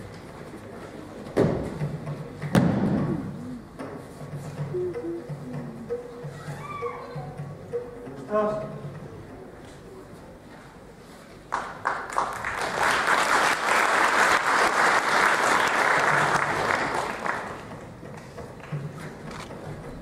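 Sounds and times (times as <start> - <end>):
audience applauding: 11.5 - 19.2.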